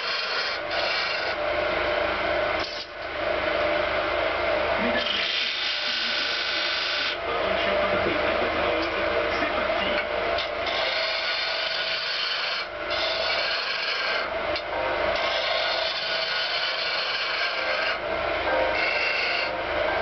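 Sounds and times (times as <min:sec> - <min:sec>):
gouge rasping on spinning wood: 0:00.0 - 0:01.4, 0:04.8 - 0:07.2, 0:10.4 - 0:14.3, 0:15.1 - 0:18.1, 0:18.7 - 0:19.6
wood lathe hum: 0:00.0 - 0:20.0.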